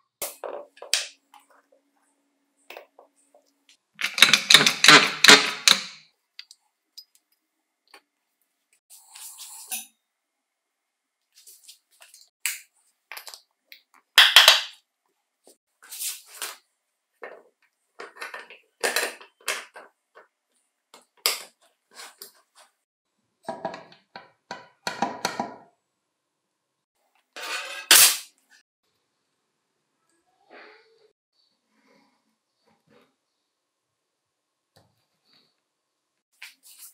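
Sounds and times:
metal parts clicking and knocking: 4.0 - 6.0.

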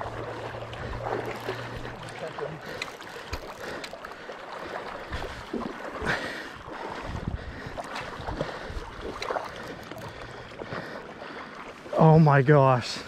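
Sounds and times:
river water running: 0.0 - 13.0
wind buffeting microphone: 6.6 - 9.2.

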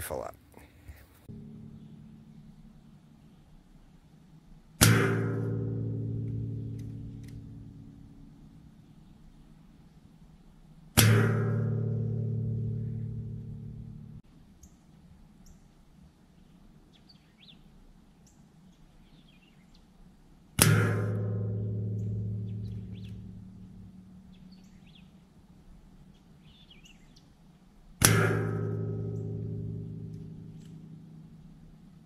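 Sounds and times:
faint bird chirps: 16.3 - 20.0, 24.2 - 25.3, 26.0 - 27.4.

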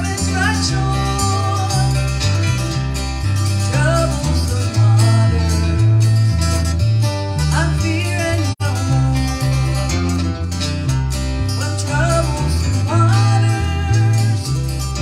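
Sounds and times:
bass line: 0.0 - 15.0
strummed acoustic guitars: 0.0 - 15.0
voices singing: 3.6 - 5.8.

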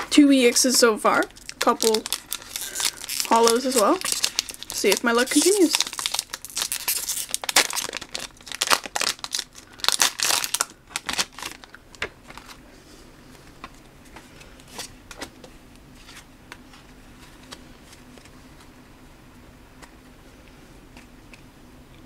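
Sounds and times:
low steady hum: 0.0 - 22.0
foil wrapper crinkling and tearing: 1.2 - 12.6.

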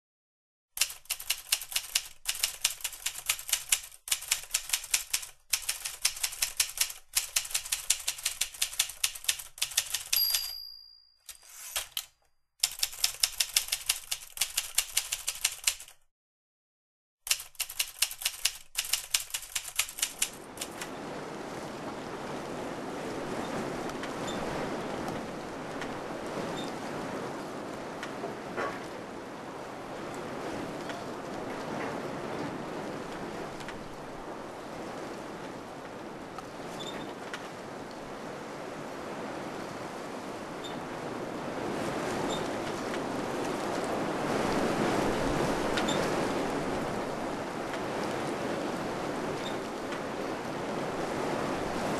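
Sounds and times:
typewriter bell ding: 10.0 - 11.8.

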